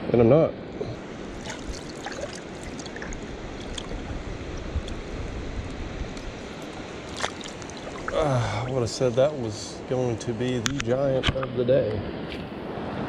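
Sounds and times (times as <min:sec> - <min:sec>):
river water flowing: 0:01.0 - 0:10.6.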